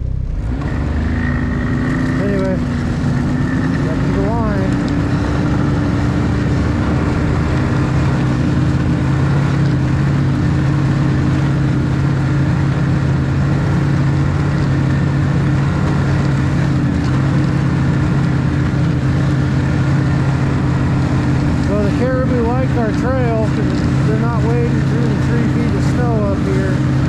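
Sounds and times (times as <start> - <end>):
snowmobile engine cruising: 0.0 - 27.0.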